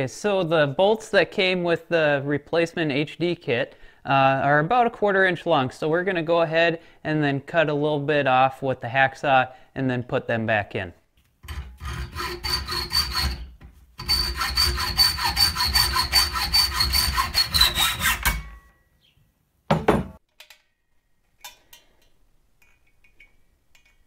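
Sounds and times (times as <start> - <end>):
hacksaw cutting steel: 11.4 - 18.6.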